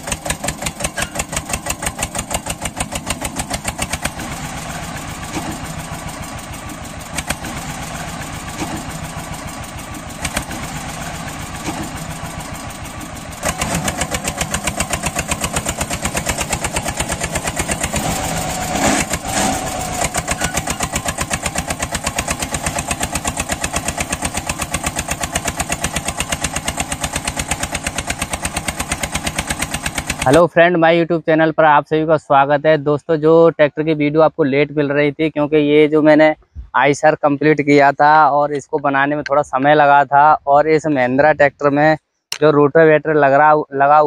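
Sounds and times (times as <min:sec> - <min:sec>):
loud clatter: 0:00.0 - 0:30.4
small engine chugging: 0:00.0 - 0:30.5.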